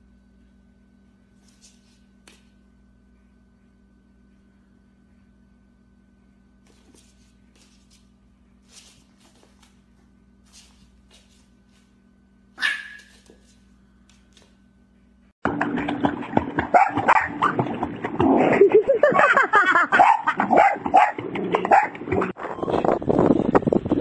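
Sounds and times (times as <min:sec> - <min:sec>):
dog barking and whining: 0:12.6 - 0:13.3, 0:19.9 - 0:22.3
puppy yipping: 0:12.6 - 0:13.3
water splashing: 0:15.5 - 0:19.2.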